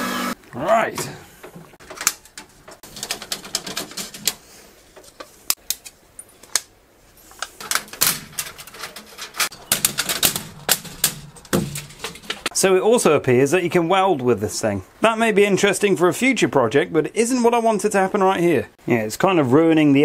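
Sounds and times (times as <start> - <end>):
steel sheet crinkling and clicking: 1.8 - 6.7, 7.3 - 12.5.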